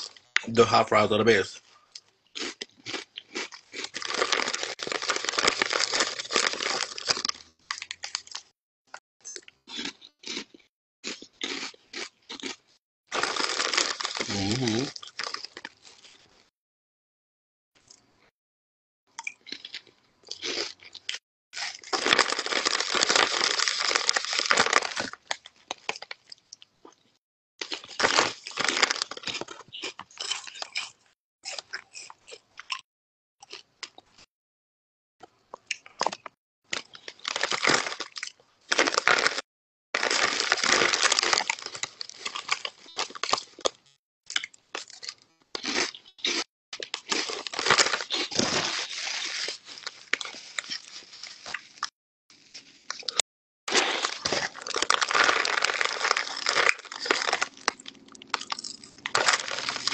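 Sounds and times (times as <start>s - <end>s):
crunchy chips being chewed: 1.9s - 8.5s, 9.2s - 16.3s, 19.2s - 27.0s, 27.6s - 32.8s, 35.5s - 39.4s, 40.0s - 59.9s
chip bag crinkling: 2.4s - 8.5s, 13.1s - 16.1s, 21.6s - 26.2s, 27.6s - 29.6s, 36.7s - 39.4s, 40.0s - 43.7s, 46.9s - 51.9s, 53.7s - 59.9s.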